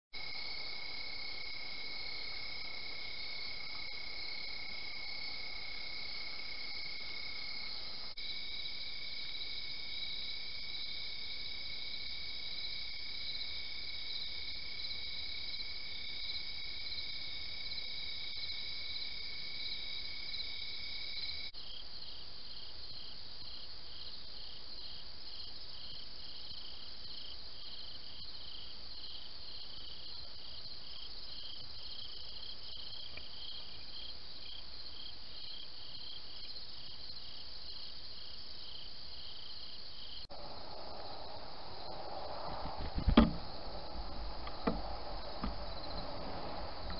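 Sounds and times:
low outdoor background: 0.1s - 46.9s
crickets trilling and chirping: 0.2s - 46.9s.

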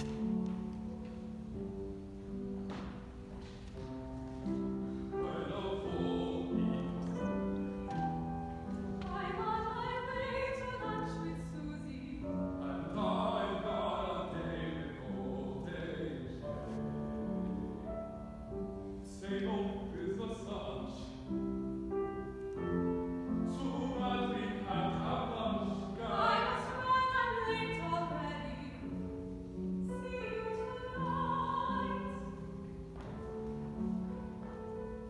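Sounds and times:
piano accompaniment: 0.0s - 35.0s
operatic singing: 5.1s - 8.0s, 9.0s - 16.6s, 23.4s - 28.8s.

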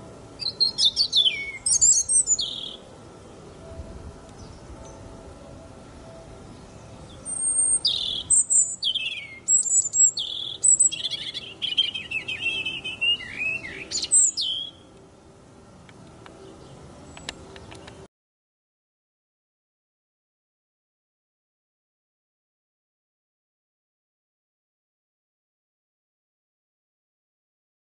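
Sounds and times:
robin singing: 0.0s - 15.0s, 16.1s - 18.1s.

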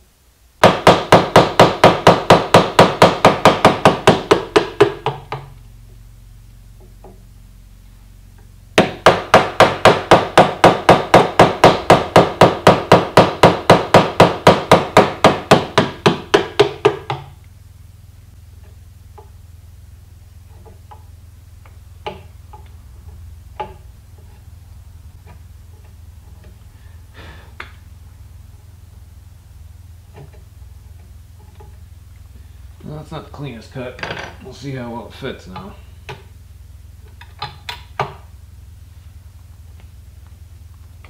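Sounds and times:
mallet striking chisel: 8.8s - 17.3s.

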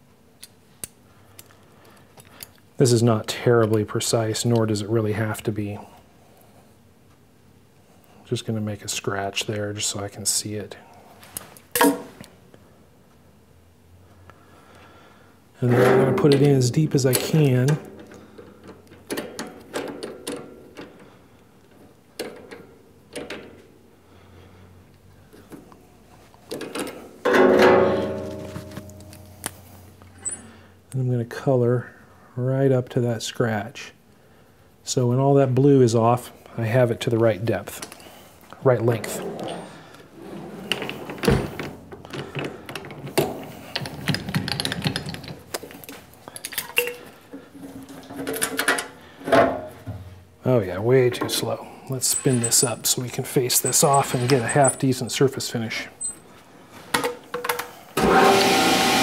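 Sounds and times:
metal tools clattering: 15.6s - 17.8s, 52.0s - 55.0s.

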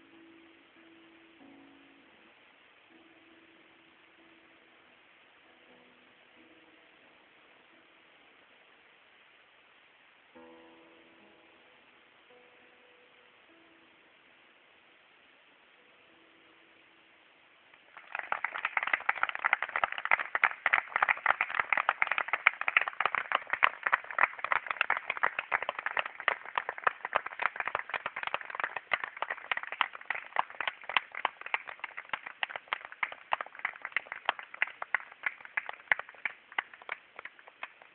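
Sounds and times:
audience applause: 17.9s - 37.9s.

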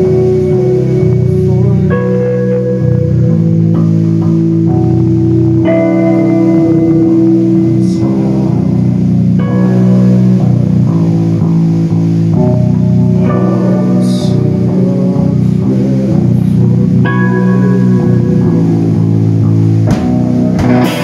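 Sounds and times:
live rock band: 0.0s - 21.0s
cymbal crash: 20.6s - 21.0s.

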